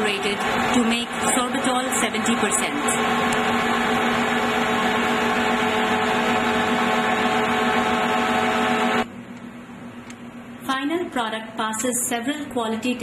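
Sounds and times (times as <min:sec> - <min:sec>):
industrial machinery humming: 0:00.0 - 0:09.2.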